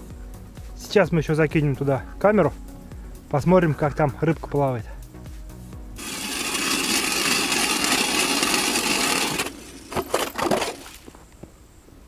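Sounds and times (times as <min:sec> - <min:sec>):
ice auger grinding through ice: 0:06.0 - 0:11.1.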